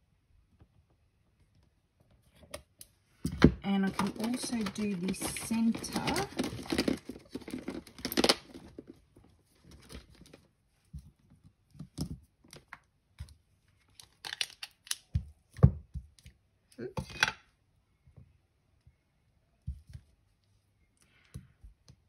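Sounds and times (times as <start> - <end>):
paper rustling and crinkling: 3.7 - 10.5.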